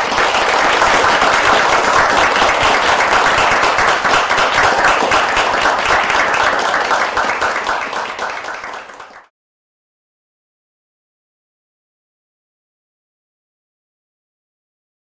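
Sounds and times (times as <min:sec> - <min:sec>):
crowd applauding: 0:00.0 - 0:09.3.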